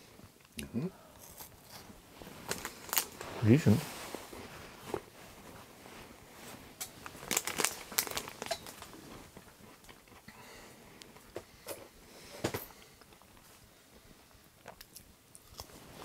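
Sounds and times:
crinkling and rustling handling: 1.2s - 16.0s.

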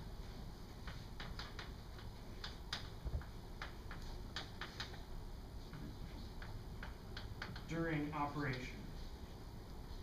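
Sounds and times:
chalk tapping on blackboard: 0.8s - 5.0s, 6.2s - 7.7s.

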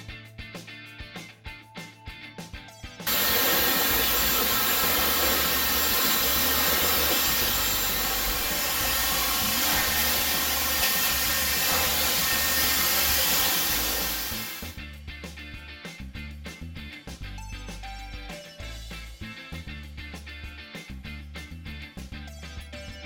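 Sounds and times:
hair dryer blowing: 3.1s - 14.8s.

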